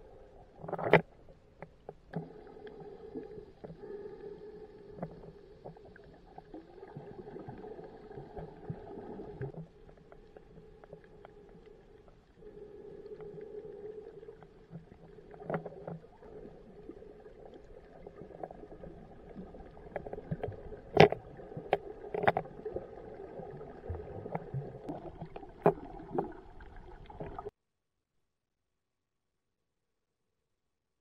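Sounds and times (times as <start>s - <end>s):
muffled underwater water rumble: 0.0s - 27.5s.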